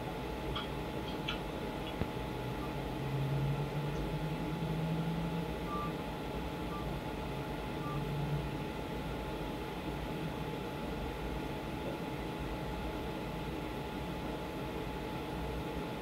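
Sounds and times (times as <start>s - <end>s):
low engine drone: 0.0s - 11.2s.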